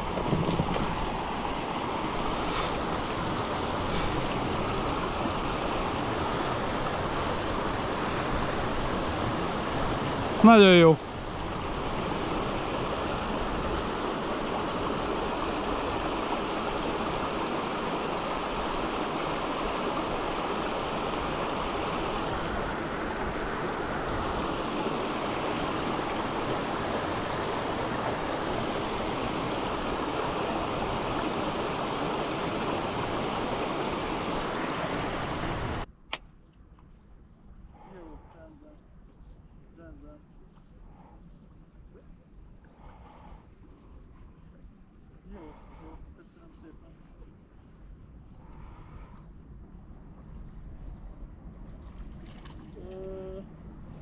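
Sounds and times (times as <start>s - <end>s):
sharp click: 36.0s - 36.6s.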